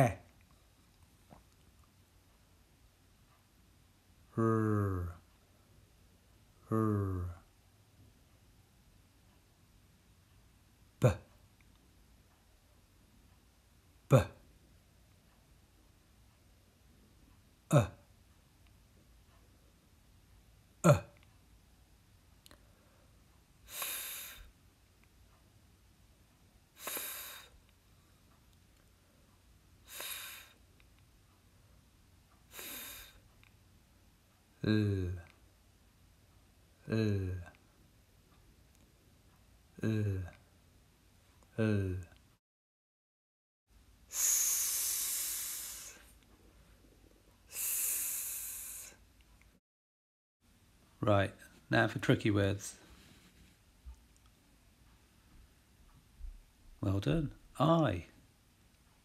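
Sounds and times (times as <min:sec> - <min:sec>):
person making breathy f sound: 0:04.4 - 0:05.2, 0:06.7 - 0:07.4, 0:17.7 - 0:18.0, 0:20.8 - 0:21.1, 0:23.7 - 0:24.5, 0:26.8 - 0:27.5, 0:29.9 - 0:30.6, 0:32.5 - 0:33.2, 0:39.8 - 0:40.3, 0:44.1 - 0:46.1, 0:47.5 - 0:49.0
person hissing s sound: 0:23.7 - 0:24.5, 0:26.8 - 0:27.6, 0:29.9 - 0:30.6, 0:32.5 - 0:33.2, 0:44.1 - 0:46.1, 0:47.5 - 0:49.0.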